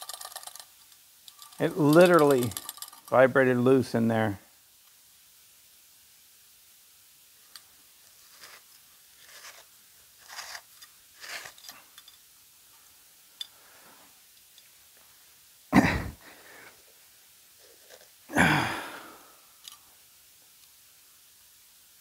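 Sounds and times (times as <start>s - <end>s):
small clicks: 0.0s - 3.2s.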